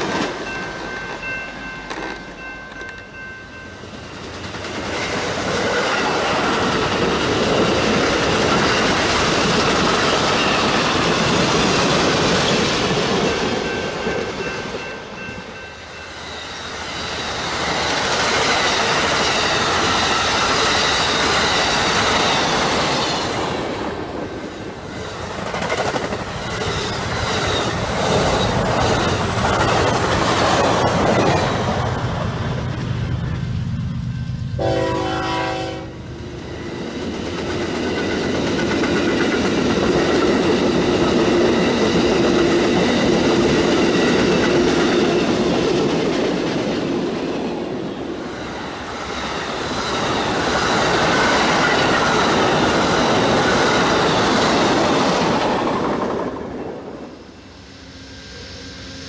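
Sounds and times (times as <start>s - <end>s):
train passing with clickety-clack: 0.0s - 59.0s
train horn chord: 34.5s - 36.1s.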